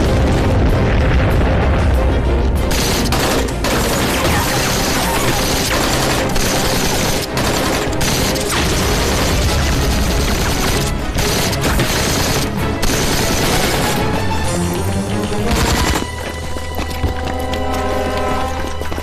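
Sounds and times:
explosion rumbling: 0.0s - 6.8s
background music: 0.0s - 19.0s
rapid gunfire: 2.7s - 14.3s, 15.4s - 16.1s.

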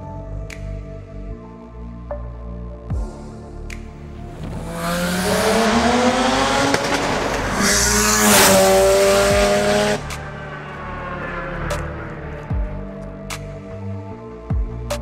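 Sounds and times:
rotary engine accelerating: 4.3s - 13.2s.

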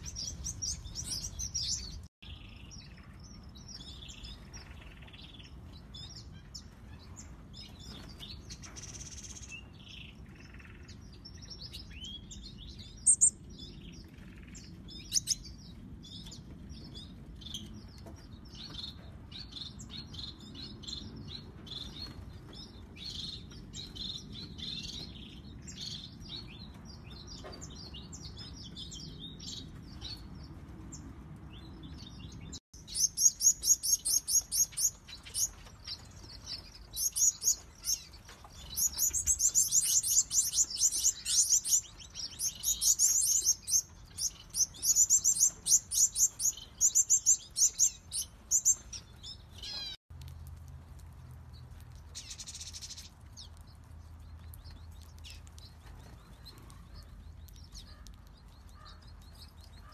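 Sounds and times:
finches chirping: 32.8s - 50.0s.

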